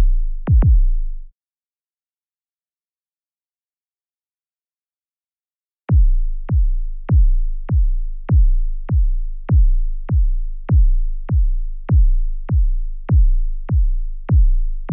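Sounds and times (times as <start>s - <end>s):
synthetic heartbeat thumps: 0.0s - 1.0s, 5.9s - 14.6s.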